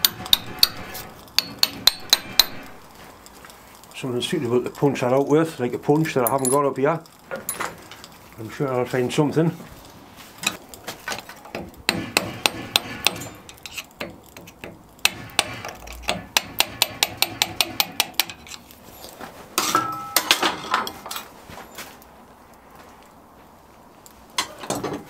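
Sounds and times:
hammer striking metal: 0.0s - 2.8s, 11.5s - 18.4s, 19.6s - 20.9s.

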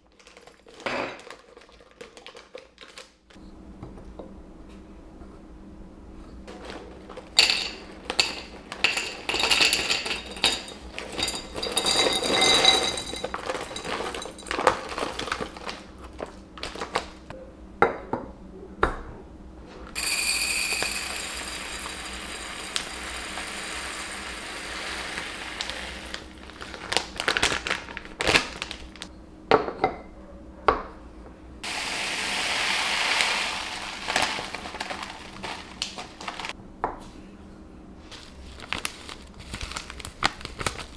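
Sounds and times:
glass jars clinking: 7.4s - 14.7s, 20.0s - 25.0s
lentils poured into glass jar: 7.4s - 15.0s, 20.0s - 26.3s, 31.6s - 36.5s
seeds poured into glass jar: 20.0s - 26.2s, 31.7s - 36.5s.

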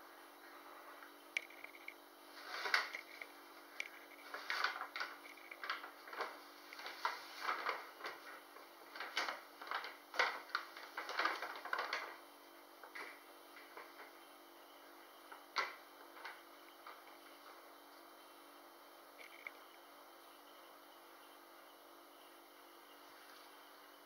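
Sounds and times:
paper bag crinkling: 1.5s - 12.2s.

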